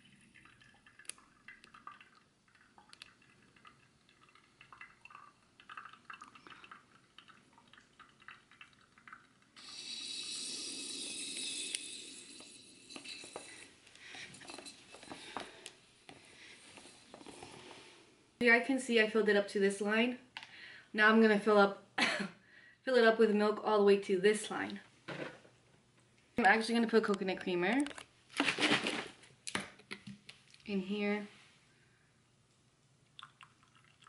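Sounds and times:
coffee trickling into mug: 0.0 - 15.6, 33.1 - 34.0
air hissing through coffee press: 9.6 - 15.7.

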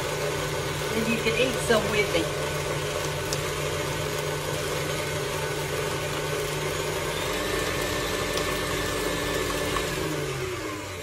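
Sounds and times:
electric mixer motor running: 0.0 - 11.0.

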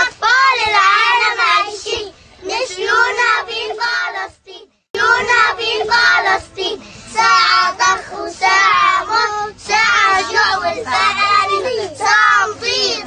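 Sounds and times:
children singing: 5.0 - 13.0.

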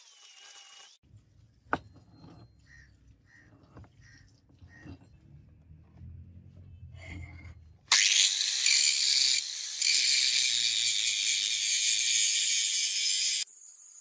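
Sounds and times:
angle grinder grinding steel: 0.0 - 1.0, 7.0 - 13.5.

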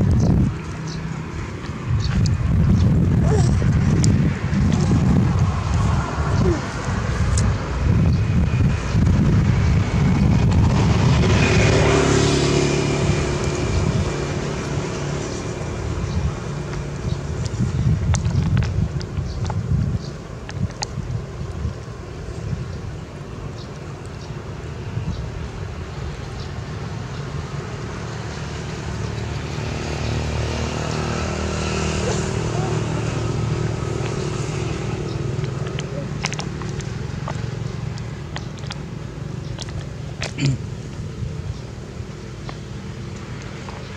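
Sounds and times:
vehicle engine passing by: 0.0 - 17.7, 26.4 - 40.3
wind rumble on microphone: 0.0 - 43.9
motor engine humming: 25.4 - 43.9.

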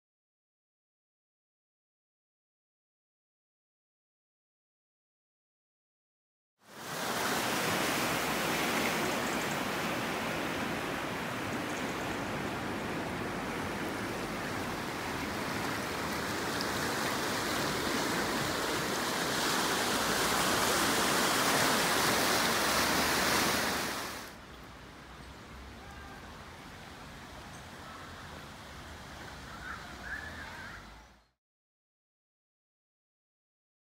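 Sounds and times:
floodwater rushing: 6.7 - 30.9.

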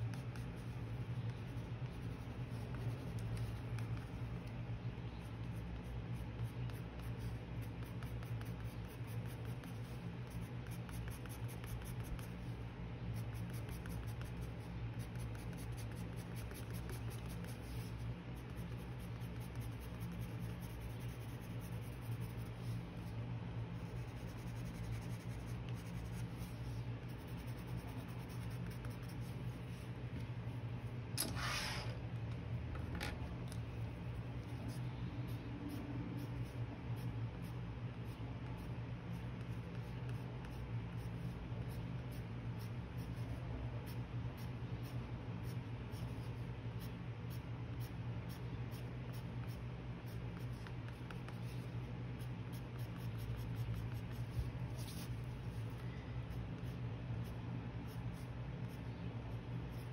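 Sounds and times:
pencil scratching on paper: 0.0 - 4.3, 5.3 - 12.6, 13.2 - 23.1, 23.8 - 29.8, 44.4 - 55.8
steady low hum: 0.0 - 59.9
pencil scrape: 31.2 - 32.0.

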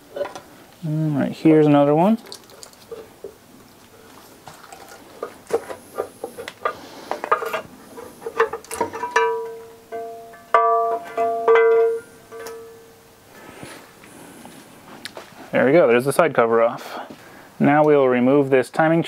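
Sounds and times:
pry bar metal clicks and knocks: 8.3 - 12.8
plucked-string background music: 8.8 - 13.1.

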